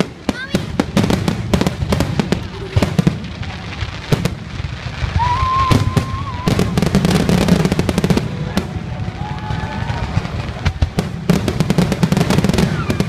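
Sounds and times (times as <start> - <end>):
fireworks bangs and crackling: 0.0 - 13.0
firework whistle: 4.9 - 11.0, 12.3 - 13.0.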